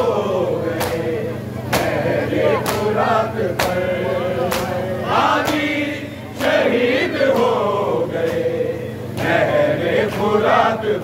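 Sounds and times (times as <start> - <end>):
men chanting in chorus: 0.0 - 11.0.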